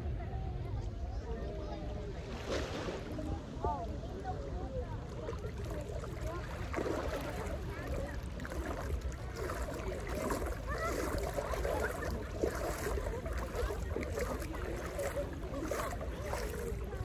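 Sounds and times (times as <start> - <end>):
sea water: 0.0 - 17.0
distant voices: 1.2 - 17.0.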